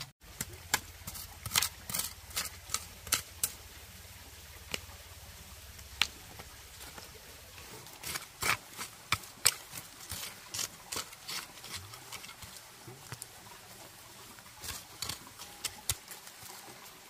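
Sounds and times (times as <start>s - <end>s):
dry leaves and twigs crackling: 5.6s - 17.0s.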